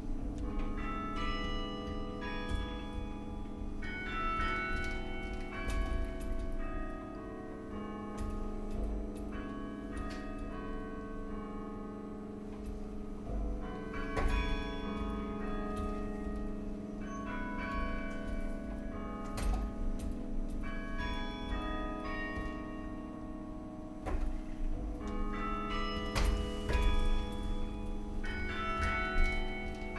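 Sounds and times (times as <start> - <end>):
carillon bells ringing: 0.0 - 29.9.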